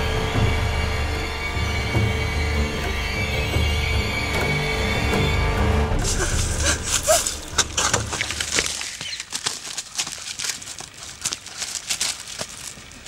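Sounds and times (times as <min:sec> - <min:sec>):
low background music: 0:00.0 - 0:08.2
footsteps crunching through leaves: 0:06.0 - 0:13.0.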